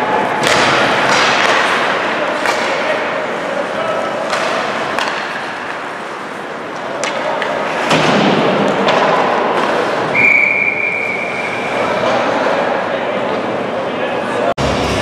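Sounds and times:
crowd and rink din: 0.0s - 15.0s
referee's whistle: 10.1s - 11.8s.

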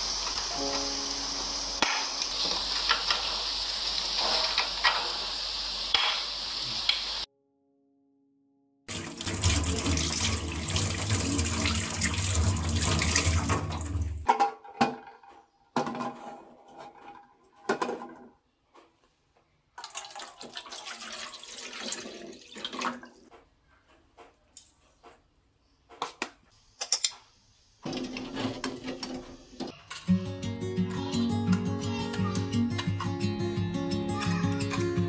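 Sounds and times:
water running from tap: 0.0s - 7.3s, 8.9s - 14.3s, 19.8s - 23.2s
water pouring into pan: 8.9s - 14.3s, 19.8s - 23.2s.

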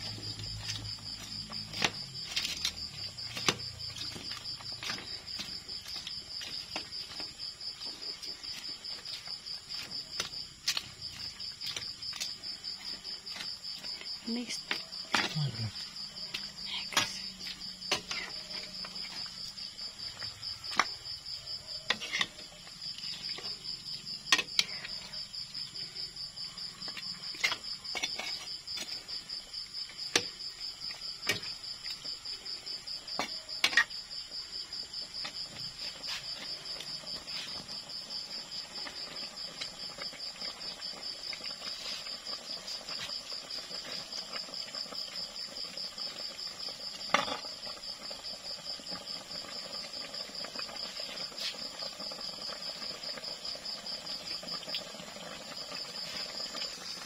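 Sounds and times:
crickets trilling: 0.0s - 57.0s.

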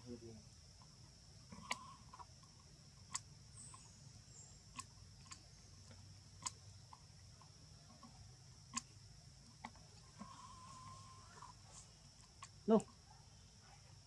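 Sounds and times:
sharp clicks: 3.1s - 3.8s
high-pitched insect drone: 10.2s - 11.6s.

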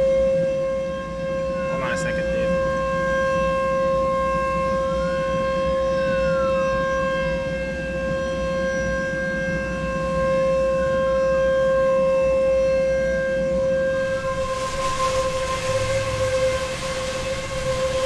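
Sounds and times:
warning siren steady tone: 0.0s - 18.0s
siren rising and falling: 12.4s - 18.0s
rain: 13.9s - 18.0s
passing traffic: 14.0s - 18.0s.

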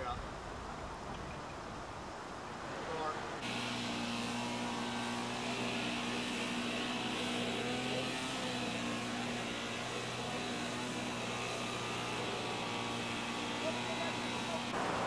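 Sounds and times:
engine running steadily: 3.4s - 15.0s.

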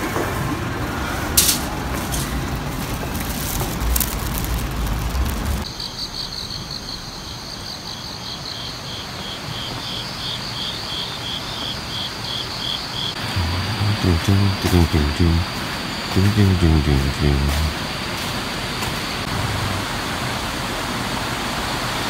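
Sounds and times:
street noise: 0.0s - 9.2s, 11.5s - 22.0s
insect chirping: 2.4s - 19.3s.

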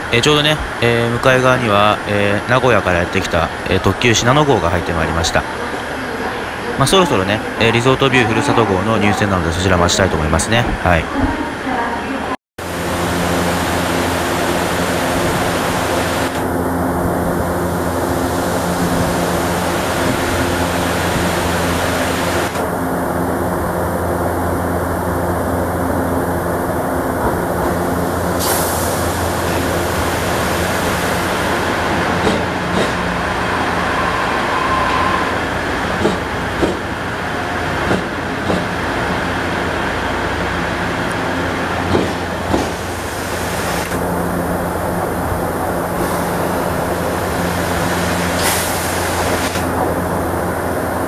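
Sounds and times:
diesel railcar arriving: 0.0s - 51.0s
standing train humming: 0.0s - 51.0s
train wheel clicks and knocks: 36.0s - 36.9s, 37.8s - 38.7s, 41.9s - 42.8s.

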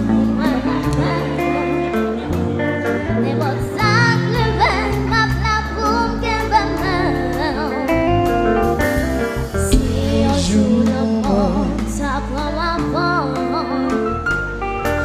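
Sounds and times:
live band playing: 0.0s - 15.0s
girl singing into a microphone: 3.1s - 8.1s, 9.6s - 14.3s.

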